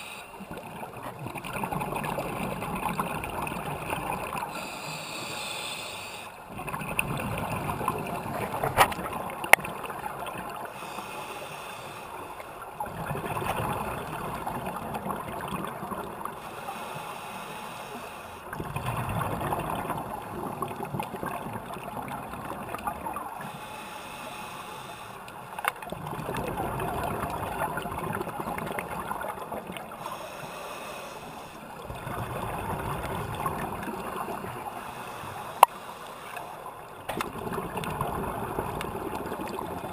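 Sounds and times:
diver breathing through regulator: 0.0 - 0.4, 4.5 - 6.4, 10.7 - 12.4, 16.4 - 18.5, 23.4 - 25.4, 29.9 - 31.8, 34.7 - 36.6.

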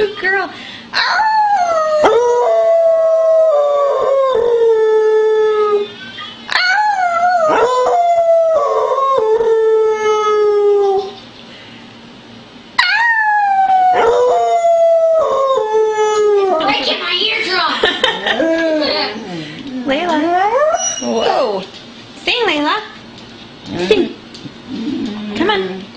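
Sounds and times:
dog howling: 1.0 - 5.9, 6.5 - 11.2, 12.8 - 17.0, 18.4 - 21.5.

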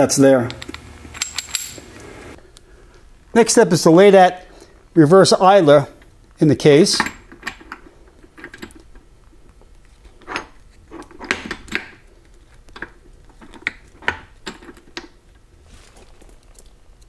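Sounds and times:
steel gear parts clinking: 0.6 - 2.0.

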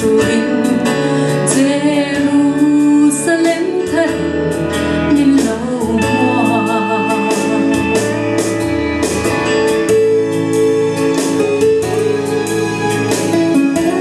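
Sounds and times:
woman singing with vibrato: 0.0 - 8.3
guitar and keyboard over a beat: 0.0 - 14.0.

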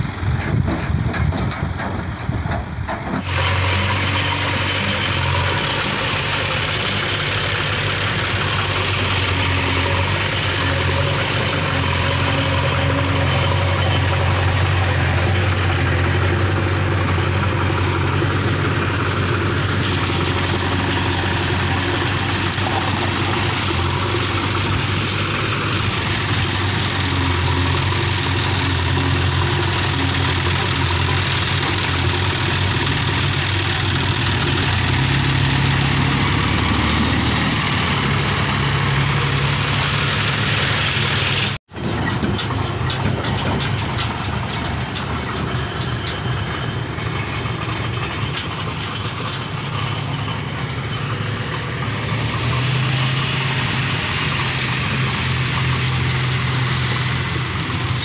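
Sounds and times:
diesel engines running: 0.0 - 58.0.

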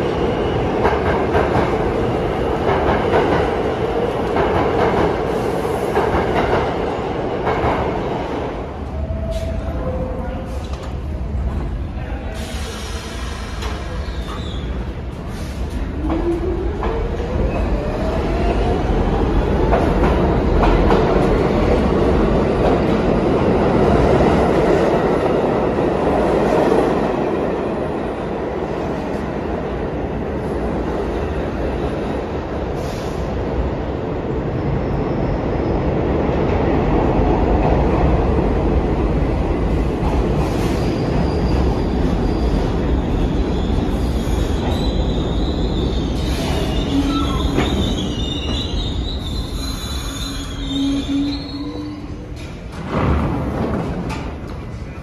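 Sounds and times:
subway train rumbling: 0.0 - 55.0
steel wheels squealing: 43.5 - 52.2.

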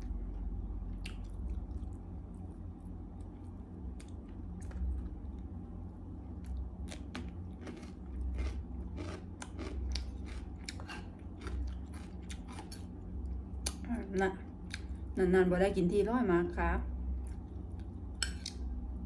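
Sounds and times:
person chewing food: 0.4 - 13.8.

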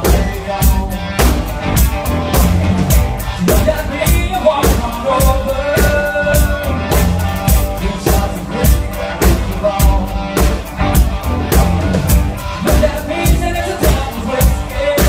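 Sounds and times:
drum kit beat: 0.0 - 15.0
live band playing: 0.0 - 15.0.

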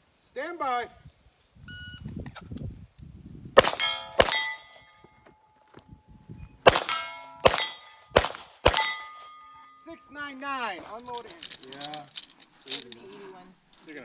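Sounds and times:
pistol shots: 3.6 - 4.8, 6.6 - 9.4
steel plate ringing: 3.8 - 5.0, 6.9 - 8.1, 8.7 - 10.1.

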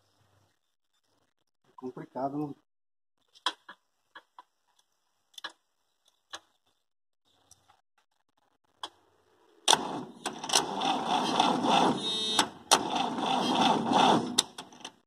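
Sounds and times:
starter motor cranking engine: 9.6 - 15.0.

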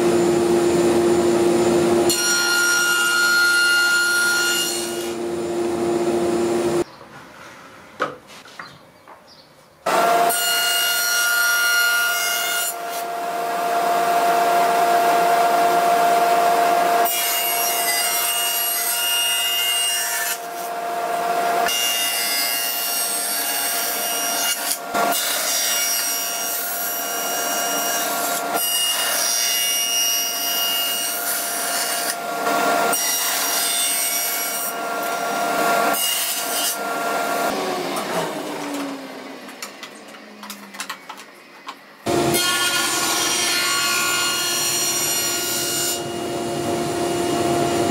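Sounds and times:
table saw ripping wood: 42.1 - 46.2.

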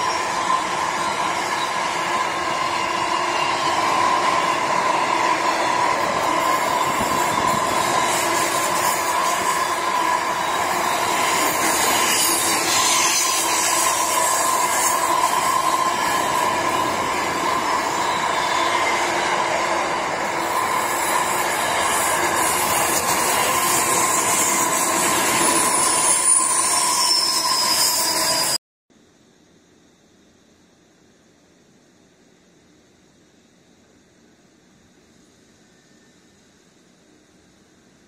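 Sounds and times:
high wheel squeals: 0.0 - 28.6
train wagons rolling on rails: 0.0 - 28.6
faint hiss: 28.9 - 38.0.

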